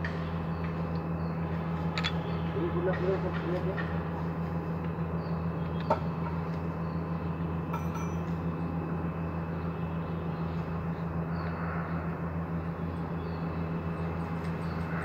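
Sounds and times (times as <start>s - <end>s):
machinery humming: 0.0s - 15.0s
metallic clink: 7.7s - 8.3s.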